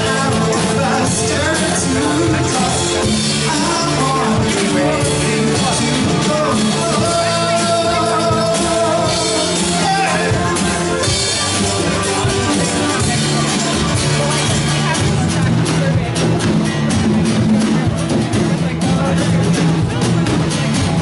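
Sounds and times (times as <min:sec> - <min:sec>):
person singing: 0:00.0 - 0:14.9
drum kit: 0:00.0 - 0:21.0
electric bass: 0:00.0 - 0:21.0
guitars: 0:00.0 - 0:21.0
keyboard: 0:00.0 - 0:21.0.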